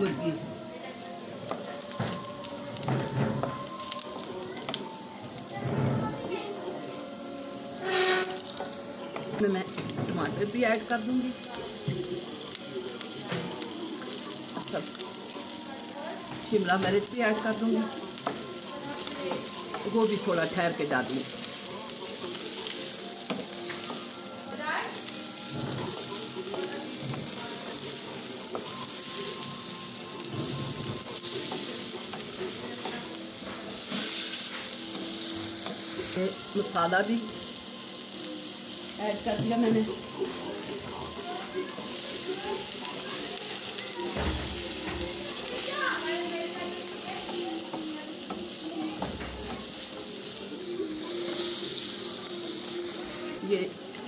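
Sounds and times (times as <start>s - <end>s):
vegetables sizzling in hot oil: 0.0s - 54.0s
wooden spatula scraping a pan: 7.8s - 8.5s.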